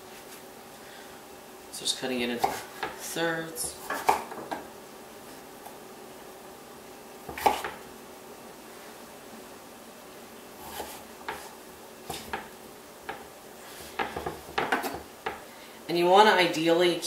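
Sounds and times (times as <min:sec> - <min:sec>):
knife chopping on wooden board: 0:02.4 - 0:03.0, 0:03.6 - 0:04.7, 0:07.3 - 0:07.8, 0:10.6 - 0:11.5, 0:12.1 - 0:12.5, 0:13.9 - 0:15.4.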